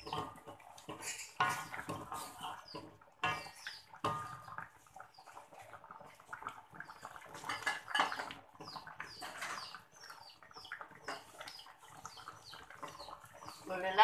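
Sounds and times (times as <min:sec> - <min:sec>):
wooden spatula scraping a wok: 0:00.0 - 0:04.4.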